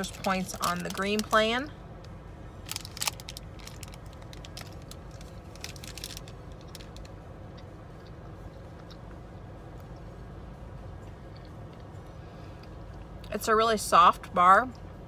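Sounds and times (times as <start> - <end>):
wrapper crinkling: 0.0 - 1.5, 2.6 - 7.1.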